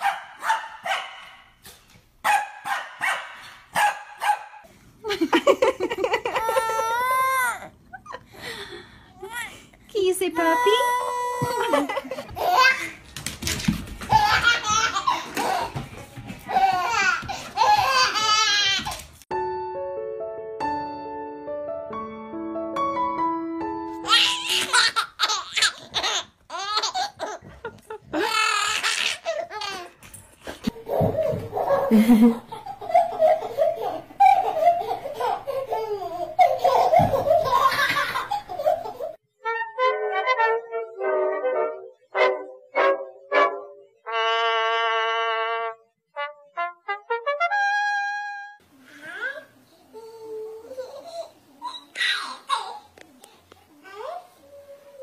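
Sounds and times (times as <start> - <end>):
baby laughing: 5.2 - 8.3, 11.4 - 13.0, 14.0 - 19.1, 24.0 - 30.0, 30.6 - 39.2, 49.1 - 53.4.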